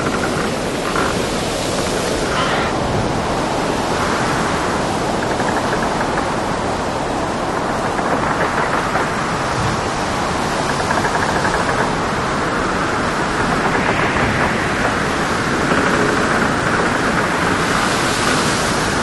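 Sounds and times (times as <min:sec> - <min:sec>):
waves breaking: 0:00.0 - 0:19.0
wind rushing: 0:00.0 - 0:19.0
faint rapid rattle: 0:05.2 - 0:06.5, 0:07.5 - 0:09.8.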